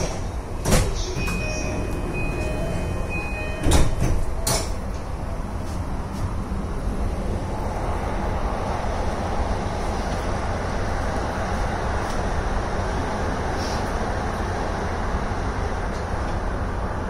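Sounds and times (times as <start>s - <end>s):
sliding doors shutting with knock: 0.0s - 4.8s
train running rumble: 0.0s - 17.0s
high warning beep: 1.0s - 4.0s.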